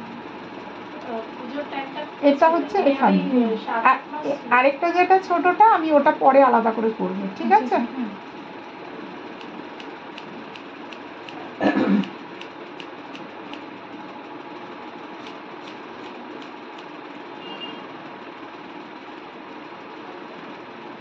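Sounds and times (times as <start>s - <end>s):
steady background hum: 0.0s - 21.0s
scissors snipping hair: 9.4s - 13.7s, 15.2s - 16.9s.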